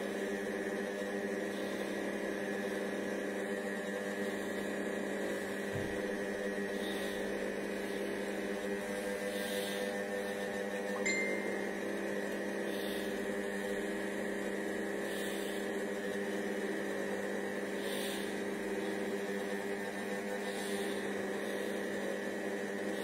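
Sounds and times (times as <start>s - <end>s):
kitchen robot motor hum: 12.6s - 23.0s.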